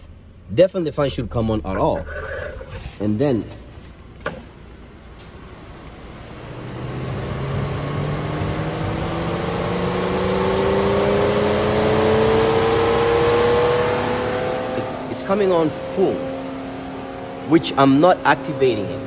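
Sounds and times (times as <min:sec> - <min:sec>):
electric cooling fan whining: 0:04.0 - 0:19.0.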